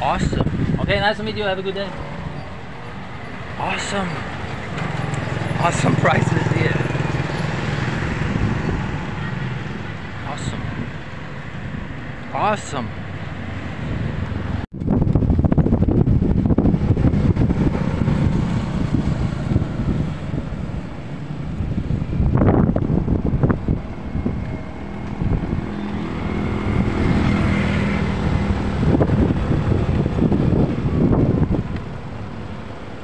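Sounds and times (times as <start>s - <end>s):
wind buffeting microphone: 0.0s - 3.6s, 4.2s - 12.3s, 13.2s - 33.0s
road noise: 0.0s - 33.0s
motorbike engine: 4.4s - 9.9s.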